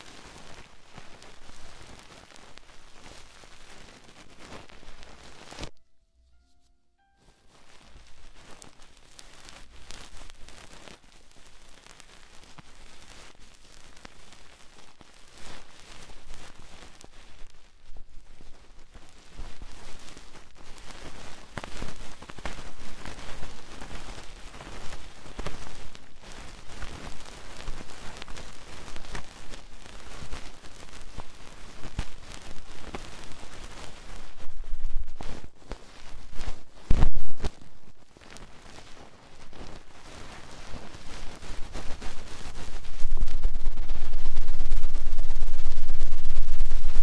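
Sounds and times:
tapping and scratching on microphone: 0:31.2 - 0:47.0
low rubbing rumble: 0:42.7 - 0:47.0.

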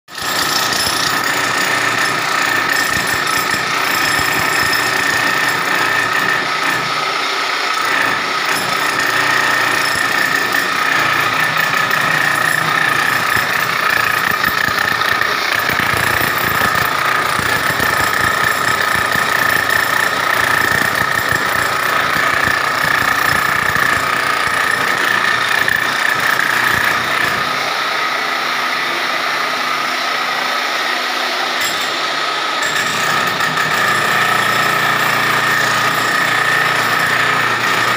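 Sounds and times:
demolition hammer chiselling wall: 0:00.1 - 0:37.9.

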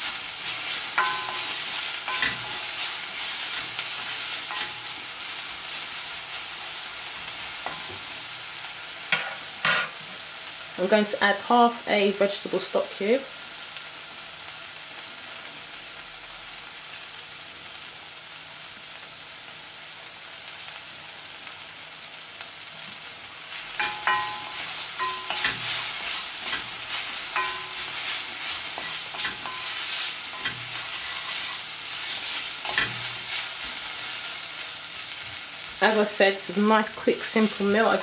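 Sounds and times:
onions sizzling in oil: 0:00.0 - 0:38.0
wooden spoon scraping pot: 0:23.8 - 0:33.7.

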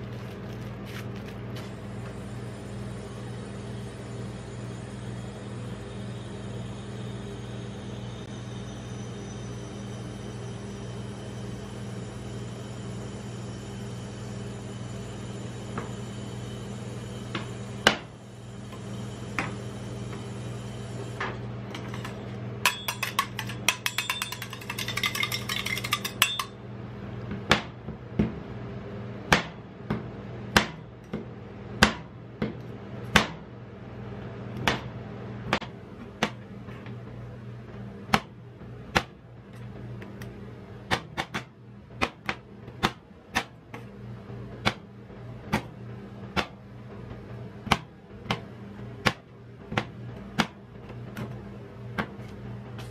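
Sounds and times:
steady low hum: 0:00.0 - 0:52.9
metal spatulas striking steel plate: 0:21.8 - 0:26.6.

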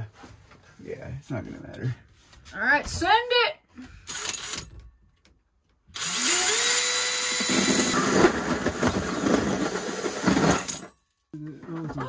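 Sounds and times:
cordless drill whine: 0:04.1 - 0:04.7, 0:06.0 - 0:08.5
hole saw cutting wall: 0:06.0 - 0:10.7.

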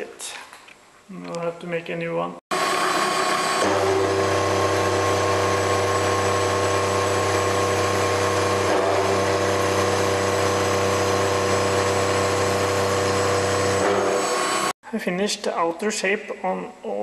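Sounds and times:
milling machine cutting metal: 0:02.5 - 0:14.8.

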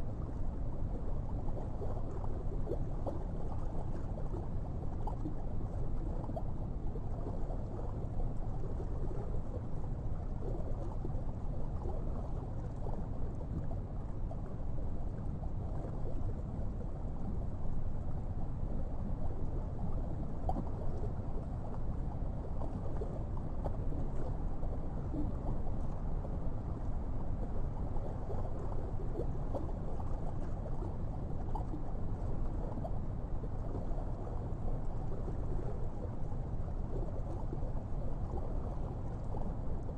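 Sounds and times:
underwater rumble of water: 0:00.0 - 0:39.9
faint ticks: 0:01.2 - 0:09.7, 0:19.0 - 0:39.9.

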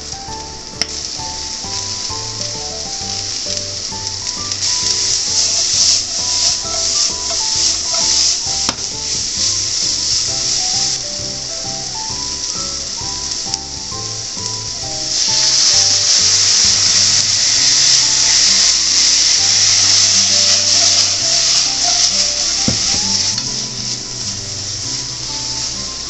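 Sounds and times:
sauce sizzling in a hot frying pan: 0:00.0 - 0:26.0.

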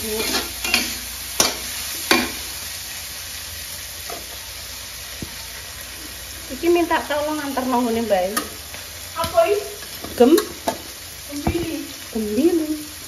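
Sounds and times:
vegetables sizzling in a wok: 0:00.0 - 0:13.0
metal tongs clacking: 0:00.2 - 0:02.4.

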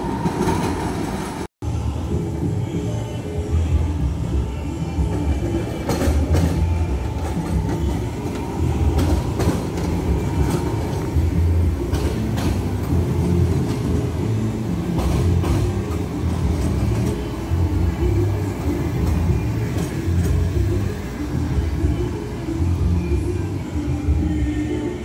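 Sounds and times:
tram rumbling on track: 0:00.0 - 0:25.0
wheels clicking over rail joints: 0:05.1 - 0:23.2.

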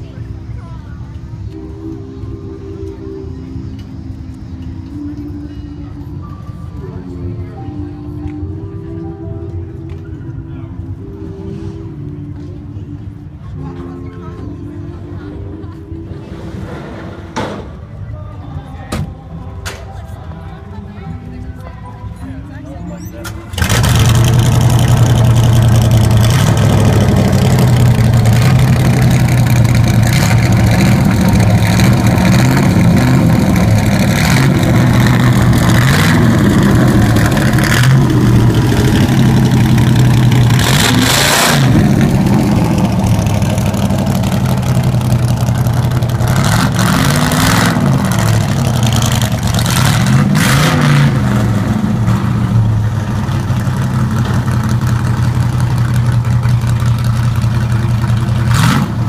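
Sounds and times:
loud car engine revving: 0:23.5 - 0:59.0.

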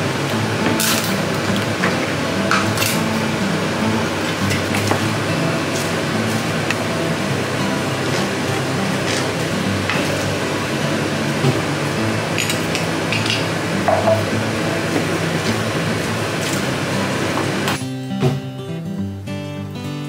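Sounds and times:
wooden spoon knocking bowl: 0:13.2 - 0:14.3.

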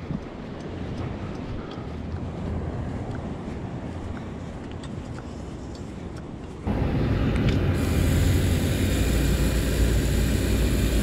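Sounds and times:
wind on microphone: 0:00.0 - 0:06.7.

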